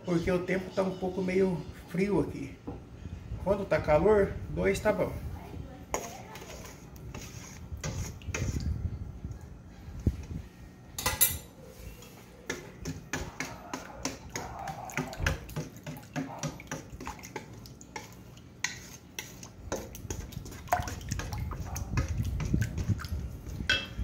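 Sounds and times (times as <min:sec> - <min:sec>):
spoon stirring dough in metal bowl: 0:05.9 - 0:08.8, 0:11.0 - 0:24.0
metallic clink: 0:11.0 - 0:11.5.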